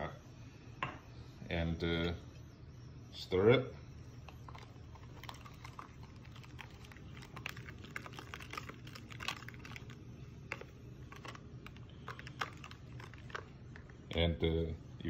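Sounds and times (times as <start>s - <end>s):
metal spoon stirring in plastic container: 4.3s - 14.2s.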